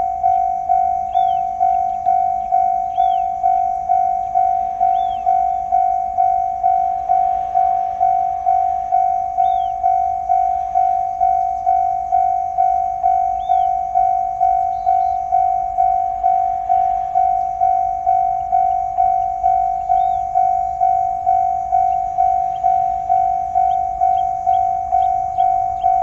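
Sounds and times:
level crossing bell dinging: 0:00.0 - 0:26.0.

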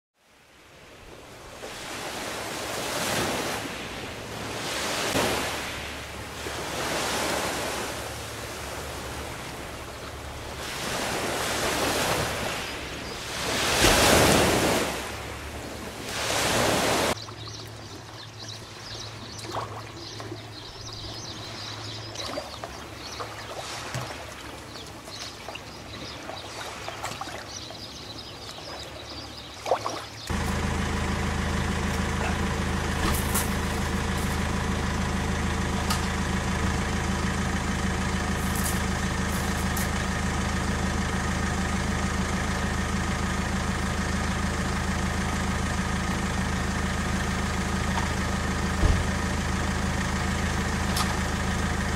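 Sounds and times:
sea waves on pebble beach: 0:00.6 - 0:17.2, 0:23.0 - 0:27.6, 0:30.0 - 0:42.0
steady low hum: 0:30.3 - 0:51.9.

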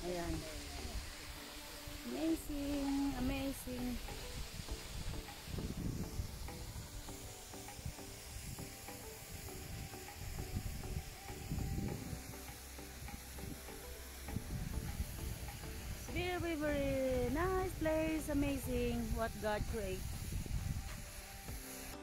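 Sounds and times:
waterfall rushing hiss: 0:00.0 - 0:22.0
wind buffeting microphone: 0:04.2 - 0:07.0, 0:09.7 - 0:12.3, 0:14.3 - 0:21.2.

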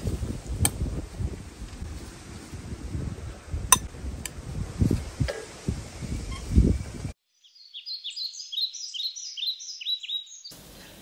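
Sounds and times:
background noise: 0:00.0 - 0:11.0
small birds chirping: 0:06.0 - 0:11.0.

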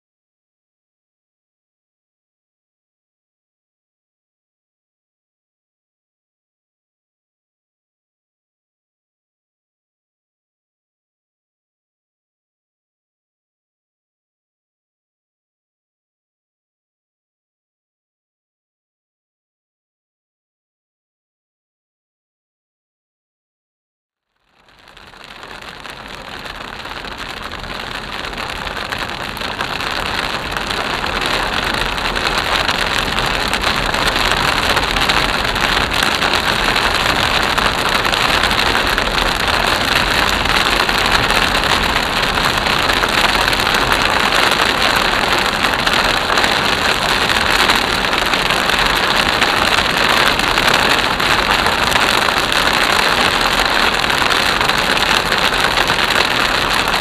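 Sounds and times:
rain on a car: 0:24.4 - 0:57.0
tyres on a wet road: 0:24.6 - 0:57.0.

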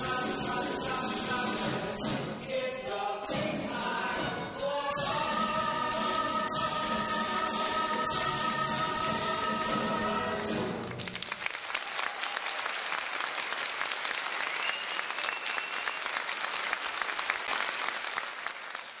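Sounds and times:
music: 0:00.0 - 0:11.4
audience applauding: 0:10.8 - 0:19.0.

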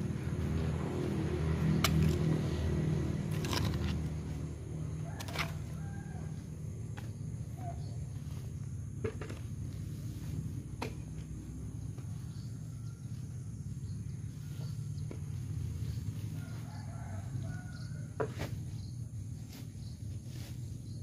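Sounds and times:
rooster crowing: 0:04.9 - 0:06.7, 0:16.2 - 0:18.4.

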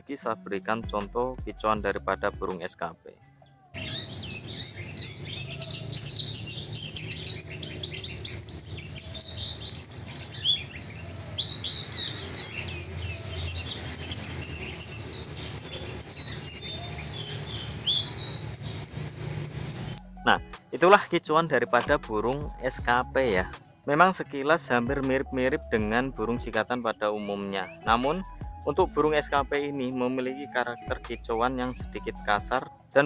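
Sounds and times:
flycatcher singing: 0:03.2 - 0:20.3, 0:26.6 - 0:32.5.

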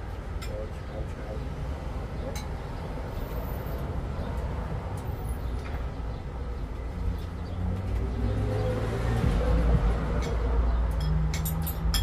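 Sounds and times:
vehicle engine passing: 0:02.9 - 0:11.9.

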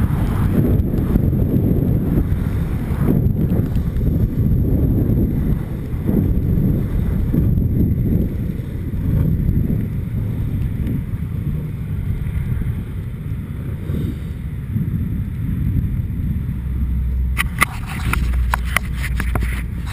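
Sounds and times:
skateboard wheels rolling on asphalt: 0:00.0 - 0:19.9
wind rumble: 0:00.0 - 0:19.9
sharp clicks and knocks: 0:17.4 - 0:19.9.

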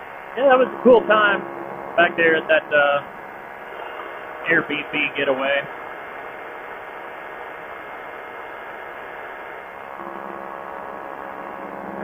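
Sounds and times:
low hum: 0:00.0 - 0:12.0
ultralight engine drone: 0:00.0 - 0:12.0.

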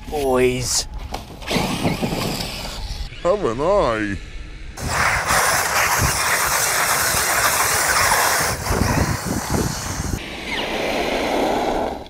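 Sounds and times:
rc truck driving over gravel: 0:01.5 - 0:03.0, 0:04.8 - 0:10.2.

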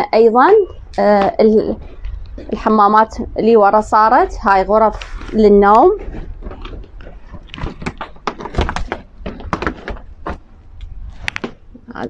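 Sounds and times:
low thuds: 0:00.4 - 0:11.9.

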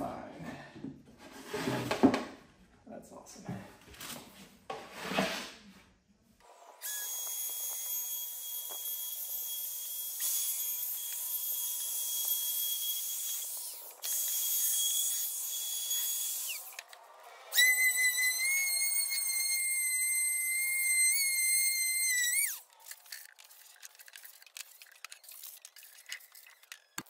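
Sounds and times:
router whining cutting wood: 0:06.7 - 0:22.9.

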